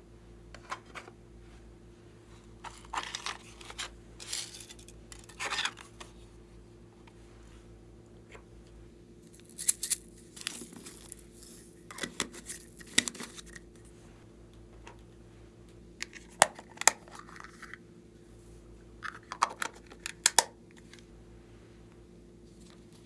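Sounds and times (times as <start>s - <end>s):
plastic lids clicking and rattling: 19.0s - 21.0s.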